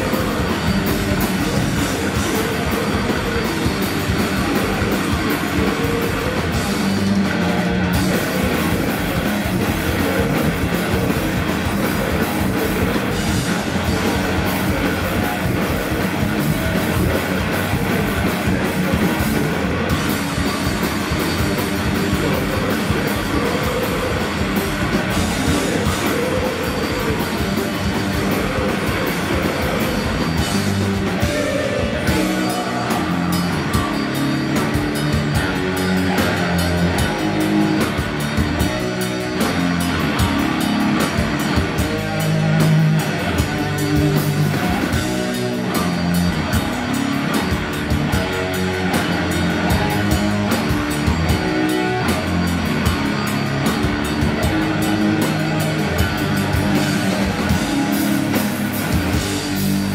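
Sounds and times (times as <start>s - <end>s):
heavy metal band playing: 0.0s - 59.9s.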